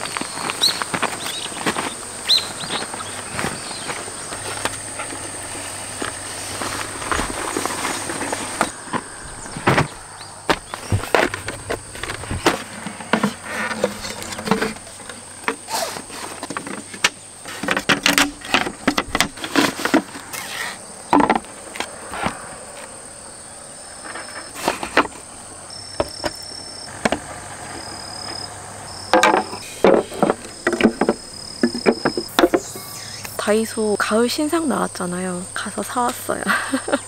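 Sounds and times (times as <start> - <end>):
insects chirping: 0.0 - 37.0
wooden gear knocking and clattering: 29.1 - 32.7.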